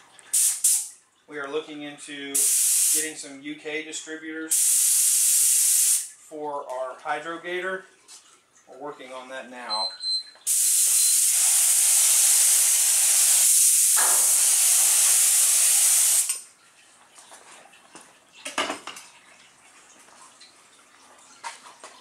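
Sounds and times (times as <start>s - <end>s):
spray gun hissing: 0.3s - 0.9s, 2.4s - 3.1s, 4.5s - 6.1s, 10.5s - 16.3s.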